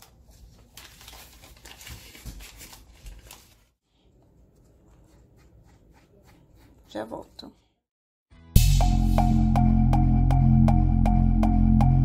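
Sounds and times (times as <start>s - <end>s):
paper wrapper crinkling and tearing: 0.0s - 3.8s.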